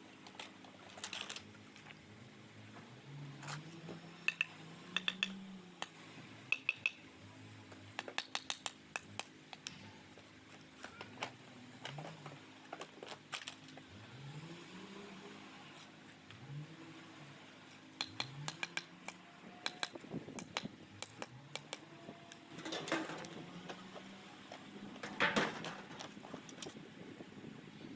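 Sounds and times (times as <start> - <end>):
trowel and hammer clinking on blocks: 4.3 - 5.9, 6.5 - 7.0, 8.0 - 9.8, 18.0 - 21.8.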